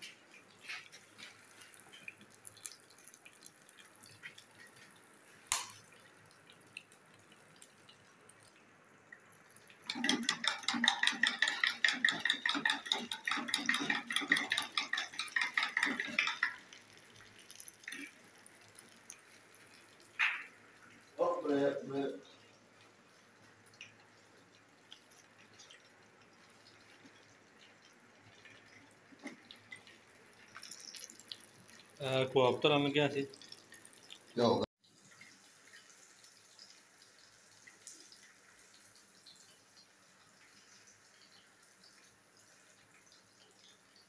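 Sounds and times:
meat sizzling in hot oil: 1.3s - 6.8s, 9.3s - 21.1s, 24.8s - 32.2s.

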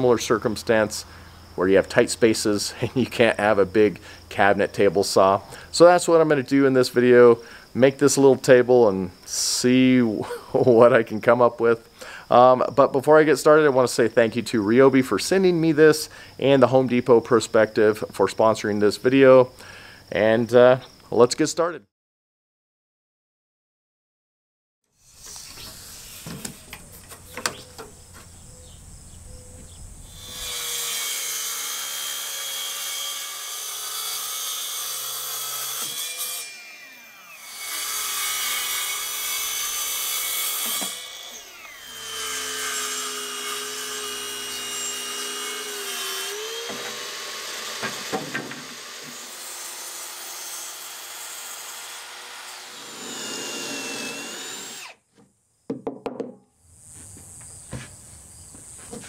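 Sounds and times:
track saw cutting wood: 30.1s - 55.0s
cordless drill boring: 40.6s - 55.0s
motor winding down whine: 41.4s - 42.0s, 52.8s - 55.0s.

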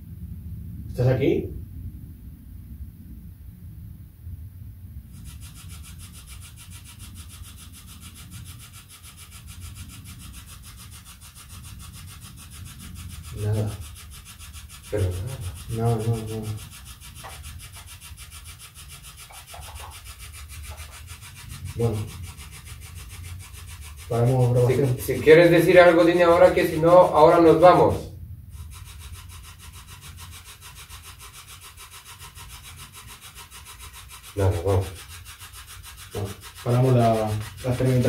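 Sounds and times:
chopped static hiss: 0.0s - 38.0s.

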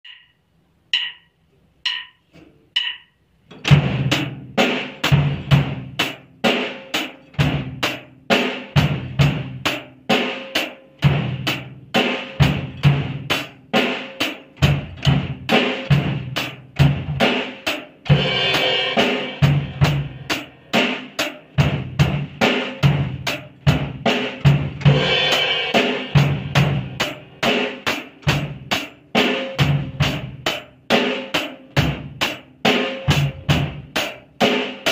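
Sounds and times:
drumstick clicks: 0.0s - 3.2s
drum kit playing slow beat: 0.0s - 34.9s.

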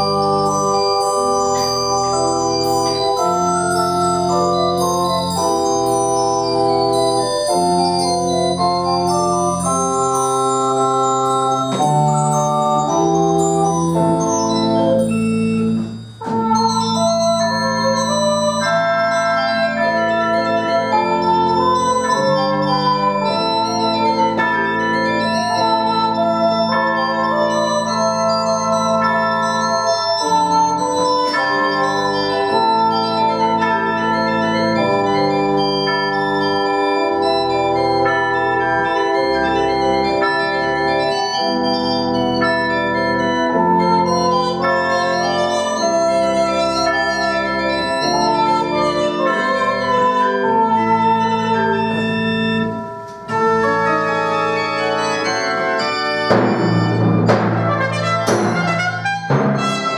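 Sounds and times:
pipe organ chords: 0.0s - 59.9s
trumpet playing held notes: 56.8s - 59.9s.

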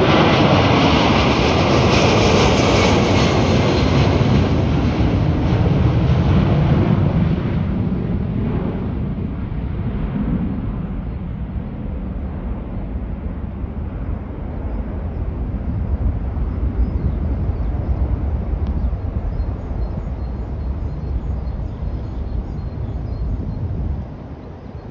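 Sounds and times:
jet engines rumbling: 0.0s - 24.9s.

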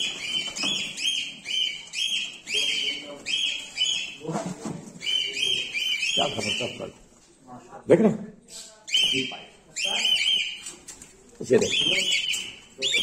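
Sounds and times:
cockatiels screeching: 0.0s - 4.2s, 5.0s - 6.9s, 8.9s - 10.7s, 11.6s - 13.0s.

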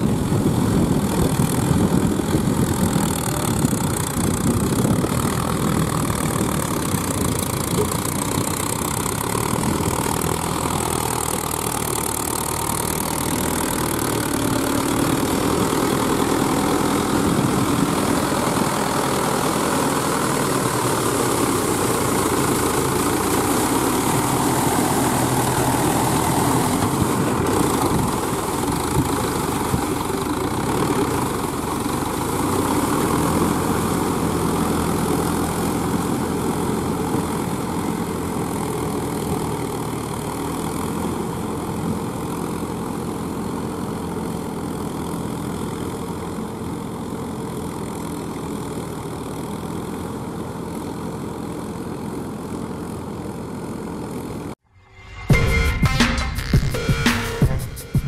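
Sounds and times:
blades churning wet mud: 0.0s - 44.3s
diesel tractor engine under load: 0.0s - 54.6s.

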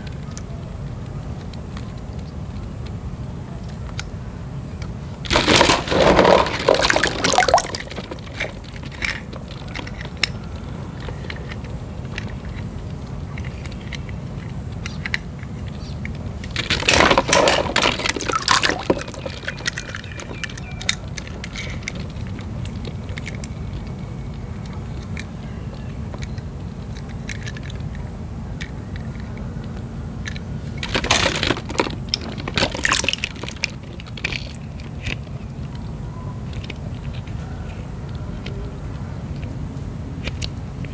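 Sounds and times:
water splashing in a tub: 5.3s - 8.2s, 17.0s - 19.6s.

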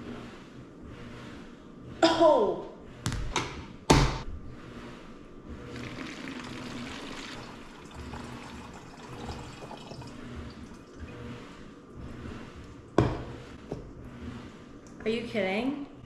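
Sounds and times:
water pouring into plastic jug: 5.7s - 11.0s.

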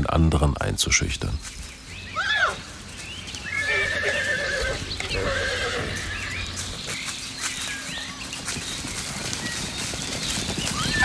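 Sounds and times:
hoofbeats on turf: 1.4s - 11.0s
horses neighing: 2.2s - 2.7s, 3.4s - 6.4s.

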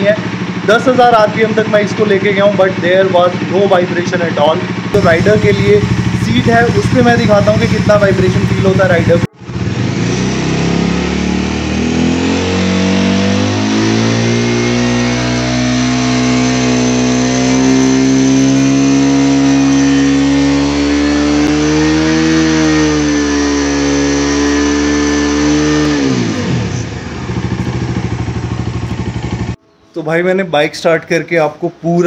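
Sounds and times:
motorcycle engine free-revving: 0.0s - 29.6s.

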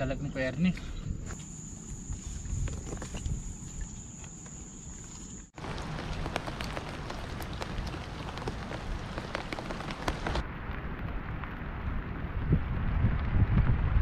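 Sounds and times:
rain falling: 5.6s - 14.0s.

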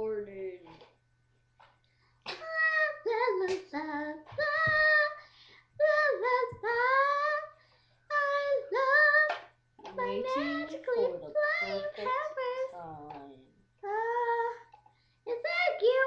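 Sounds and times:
child singing wordless tune: 2.3s - 5.2s, 5.8s - 13.1s, 13.8s - 16.0s.

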